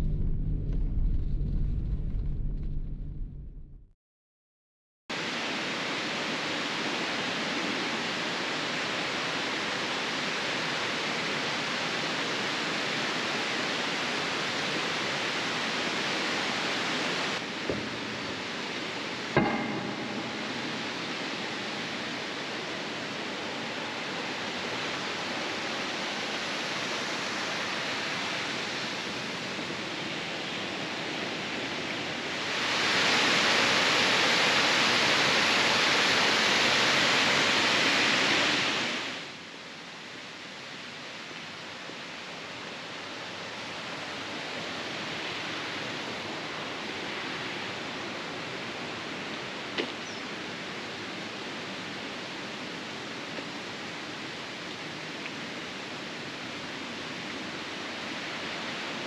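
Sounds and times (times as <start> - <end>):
flowing water rushing: 5.2 - 59.0
knock with brief ring: 19.4 - 21.5.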